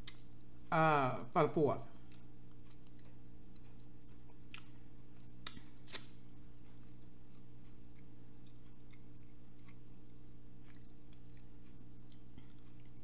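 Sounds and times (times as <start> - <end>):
low electrical hum: 0.0 - 13.0
chewing mouth clicks: 2.1 - 13.0.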